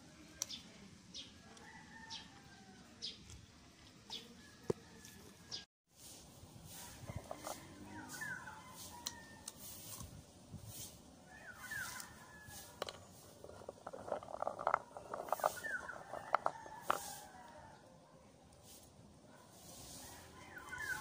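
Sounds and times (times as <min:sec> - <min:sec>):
birds chirping: 0:07.8 - 0:09.3, 0:11.2 - 0:16.8, 0:20.4 - 0:21.0.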